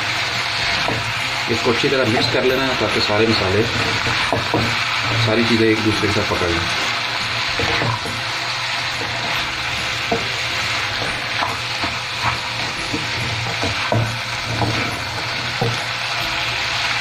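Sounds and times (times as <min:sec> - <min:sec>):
vegetables sizzling in frying pan: 0:00.0 - 0:17.0
spatula tapping and scraping pan: 0:02.1 - 0:05.4, 0:07.5 - 0:08.3, 0:08.9 - 0:16.0.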